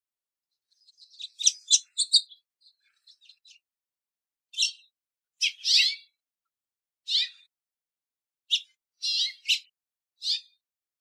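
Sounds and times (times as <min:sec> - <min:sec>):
finch cheeping: 0:00.8 - 0:02.4.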